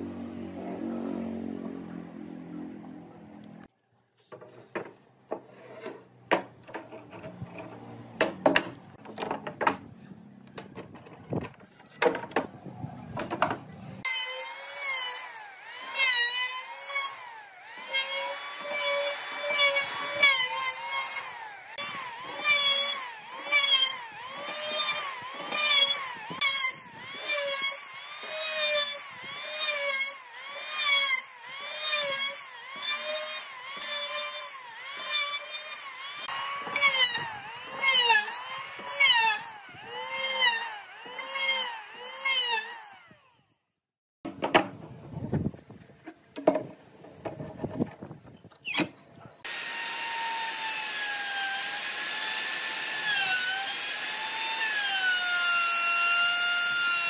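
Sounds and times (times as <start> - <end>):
electric planer on wood: 0.0 - 3.6, 14.0 - 43.4, 49.4 - 57.0.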